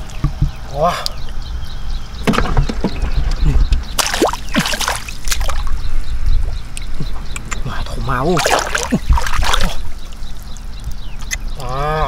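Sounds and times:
water sloshing and splashing: 4.0s - 5.8s, 8.0s - 11.0s.

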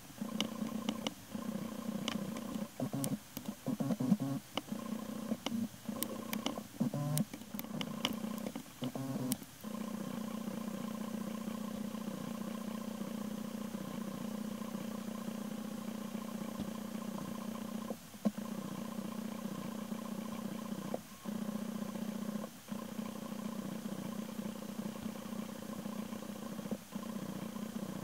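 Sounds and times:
sharp clicks: 2.0s - 4.7s, 5.4s - 9.5s.

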